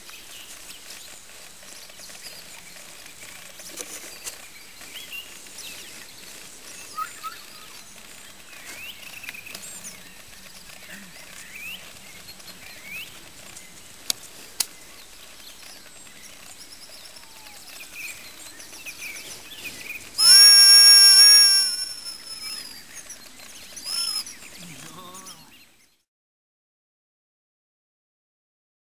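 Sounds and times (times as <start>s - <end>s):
faint bird chirps: 3.9s - 26.0s
high-pitched whistle blast: 20.2s - 22.8s, 23.9s - 24.2s.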